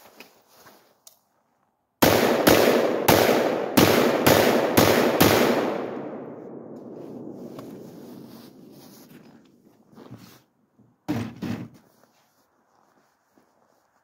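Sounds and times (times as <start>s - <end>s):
gunshots with echo: 2.0s - 9.0s.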